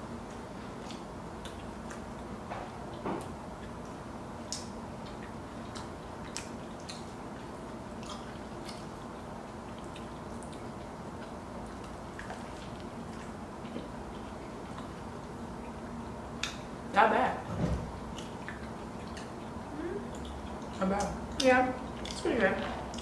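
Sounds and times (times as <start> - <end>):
low room hum: 0.0 - 23.0
wet mouth clicks chewing: 3.6 - 15.0, 18.1 - 23.0.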